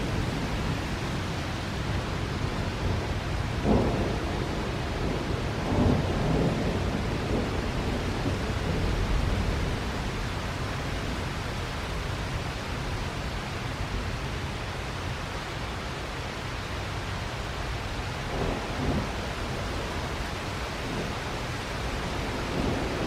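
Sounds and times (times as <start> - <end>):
thunder rumbling: 0.0 - 10.1, 18.3 - 20.2, 20.8 - 23.0
heavy rain hissing: 17.3 - 23.0.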